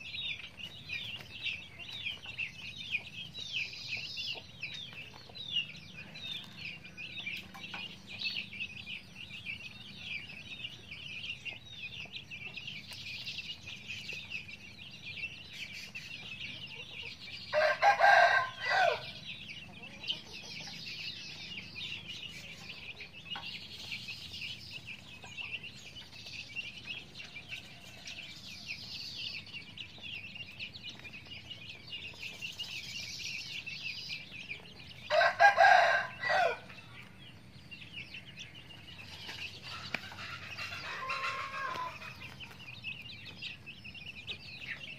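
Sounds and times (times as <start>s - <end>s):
chicks peeping: 0.0s - 44.9s
rooster crowing: 17.5s - 19.2s, 35.1s - 36.8s, 40.2s - 42.2s.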